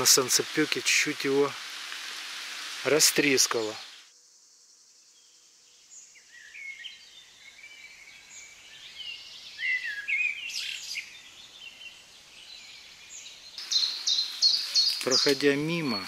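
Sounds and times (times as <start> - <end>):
songbirds chirping and trilling: 3.2 - 16.0.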